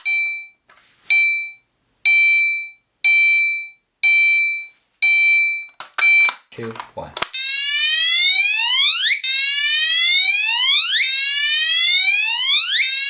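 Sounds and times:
fire alarm whoop tone: 7.4s - 13.0s.

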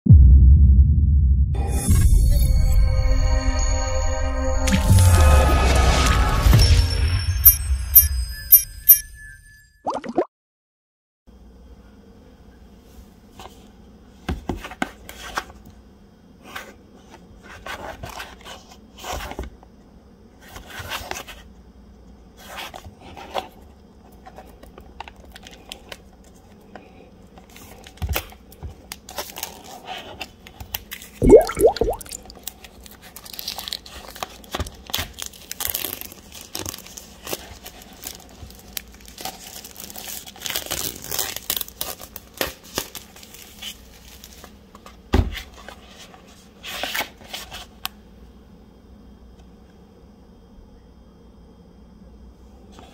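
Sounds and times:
plastic shrink-wrap crinkling: 32.2s - 44.5s.

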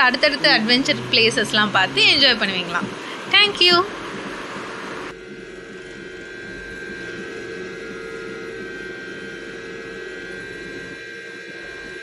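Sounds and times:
mechanical hum with tones: 0.0s - 12.0s.

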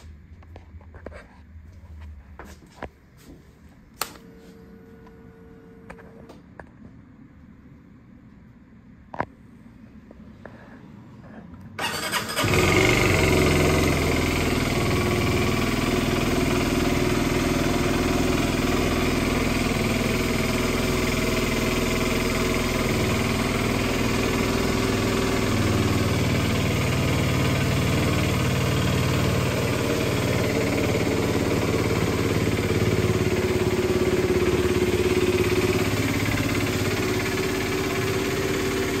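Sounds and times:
motorcycle engine starting and idling: 11.8s - 39.0s.

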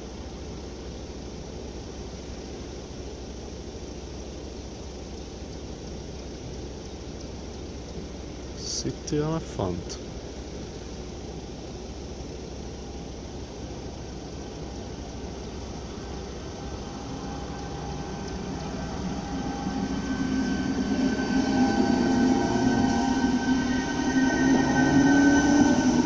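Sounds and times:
electric train hum and whine: 0.0s - 26.0s.

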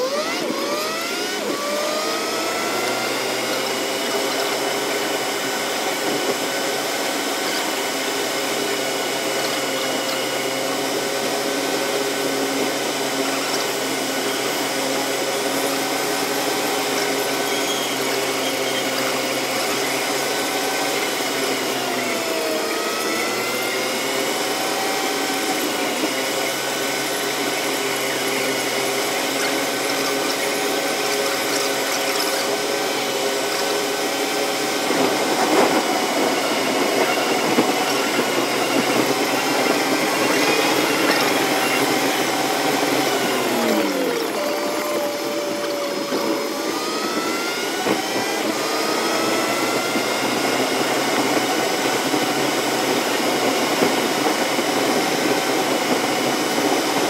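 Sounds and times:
car engine drone: 0.0s - 57.0s
tyres rumbling on road: 0.2s - 57.0s.

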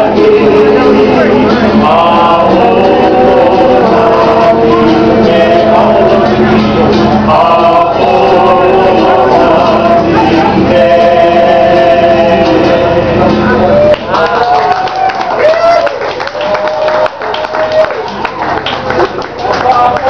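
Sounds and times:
group singing together: 0.0s - 13.9s
strummed ukulele: 0.0s - 14.5s.

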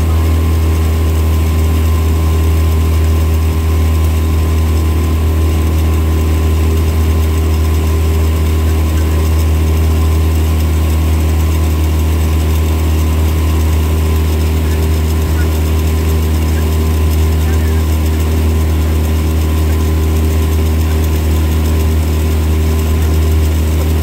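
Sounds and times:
outboard motor running: 0.0s - 24.0s.

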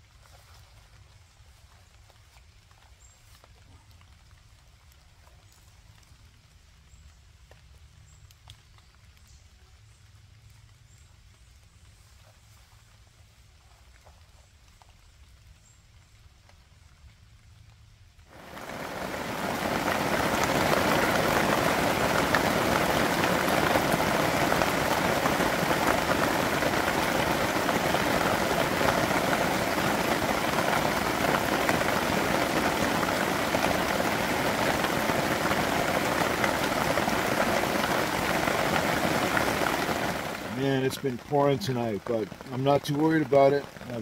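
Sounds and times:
heavy rain pouring: 18.3s - 44.0s.

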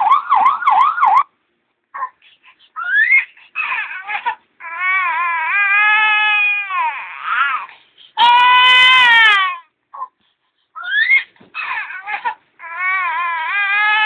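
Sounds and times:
baby crying through phone speaker: 2.8s - 10.1s, 10.8s - 14.0s.

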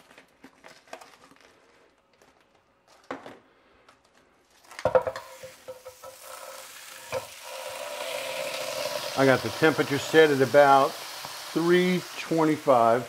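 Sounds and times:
shrimp sizzling: 4.8s - 13.0s.

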